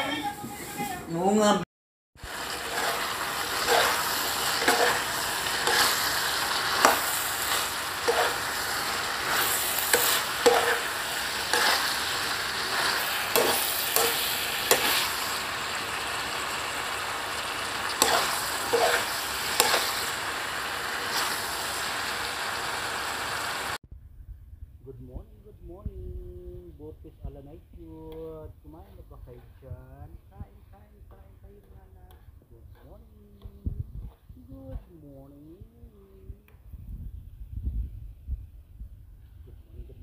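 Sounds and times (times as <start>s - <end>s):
food sizzling in frying pan: 2.2s - 23.8s
metal spoon scraping pan: 2.7s - 15.3s, 17.8s - 20.2s.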